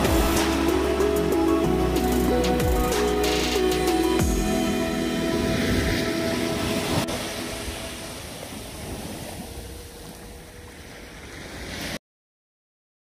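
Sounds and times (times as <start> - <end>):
background music: 0.0 - 8.4
surf washing up a beach: 0.0 - 12.0.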